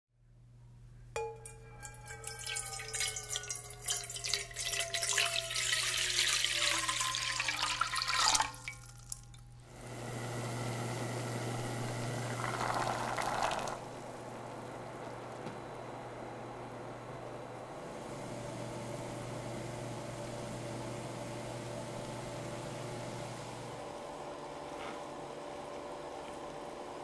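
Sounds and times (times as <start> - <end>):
water pouring into pot: 1.8 - 9.4, 11.8 - 14.2
water hissing while heating: 9.7 - 15.4.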